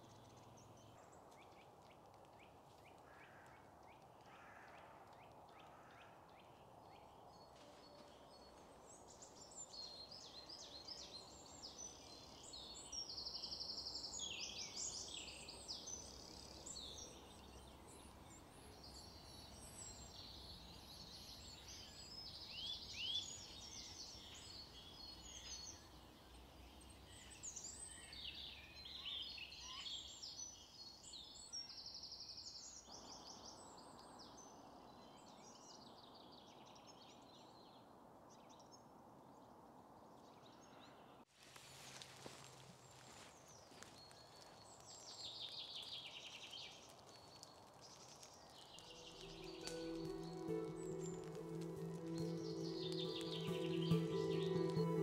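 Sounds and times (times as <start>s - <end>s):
songbirds singing: 0.0s - 37.8s, 43.0s - 55.0s
low steady background hiss: 6.7s - 31.5s.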